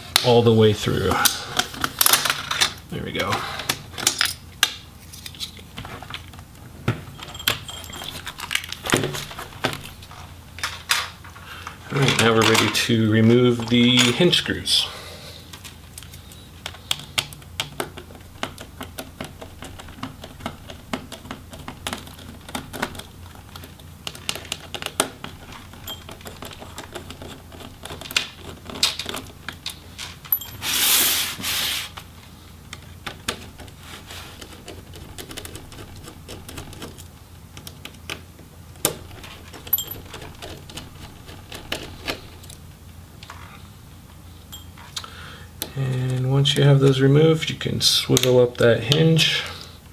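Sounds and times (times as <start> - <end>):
plastic parts clattering: 1.2 - 4.4, 5.0 - 12.9
loud scrape: 30.5 - 32.0.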